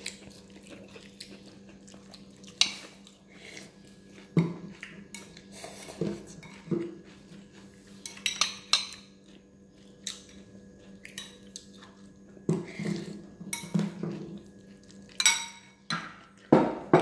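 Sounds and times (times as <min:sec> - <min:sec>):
faint steady hum: 0:00.0 - 0:17.0
cutlery clinking on ceramic bowl: 0:08.0 - 0:09.1, 0:15.1 - 0:16.2.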